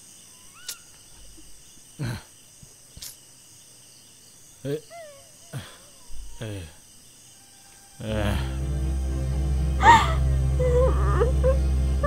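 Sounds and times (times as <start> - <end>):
crickets chirping: 0.0 - 12.0
voice-like grunts: 2.0 - 2.3, 4.6 - 6.8, 8.0 - 8.6.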